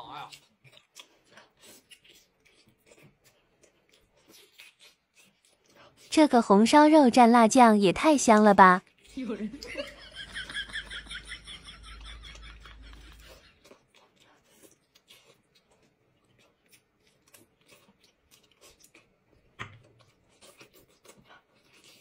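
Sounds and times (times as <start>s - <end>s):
chewing and mouth sounds: 0.0s - 7.0s, 8.2s - 9.8s, 11.6s - 22.0s.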